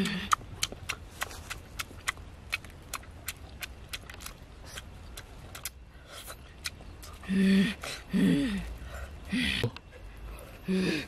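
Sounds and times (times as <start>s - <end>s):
person chewing wetly: 0.0s - 7.2s.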